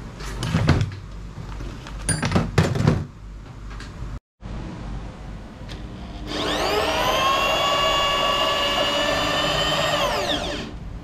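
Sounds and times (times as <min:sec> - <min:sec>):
electric drill whining: 0:06.2 - 0:10.8.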